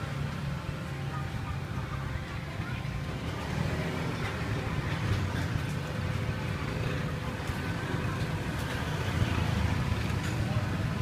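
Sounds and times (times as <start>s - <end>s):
low rumble of traffic: 0.0s - 11.0s.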